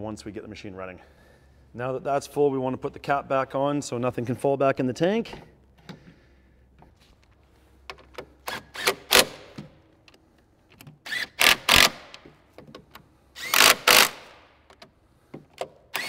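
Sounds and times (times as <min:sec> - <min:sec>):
tool tightening bolts in bursts: 0:07.9 - 0:16.0.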